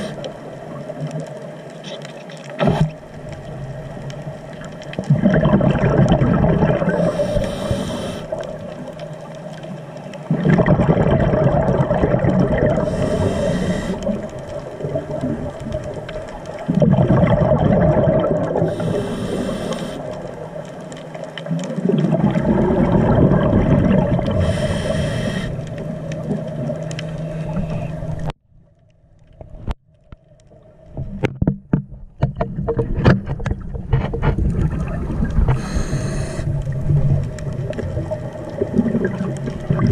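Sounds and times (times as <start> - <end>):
regulator inhale hiss: 0.0 - 0.4, 7.0 - 8.5, 12.8 - 14.2, 18.6 - 20.2, 24.4 - 25.8, 35.5 - 36.6
scattered clicks and crackles: 0.0 - 39.9
regulator exhale bubbles gurgling: 4.5 - 8.9, 10.2 - 20.5, 21.4 - 28.3, 32.5 - 39.9.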